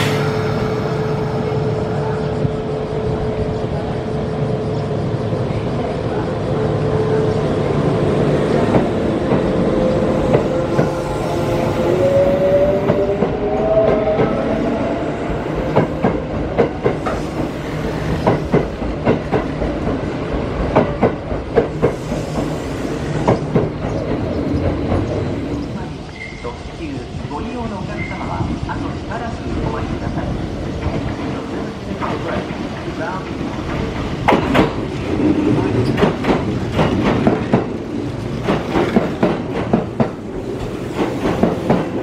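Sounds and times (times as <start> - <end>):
electric train hum: 0.0 - 42.0
wheels clacking over rail joints: 30.8 - 42.0.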